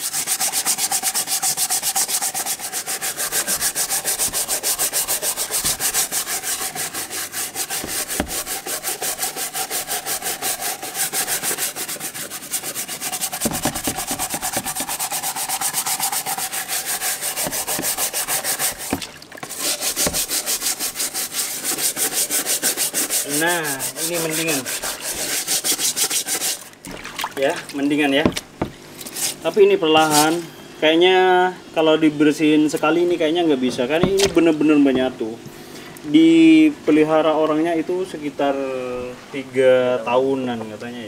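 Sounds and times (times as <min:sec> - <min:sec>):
plastic brush scrubbing shell: 0:00.0 - 0:30.4, 0:33.7 - 0:35.1.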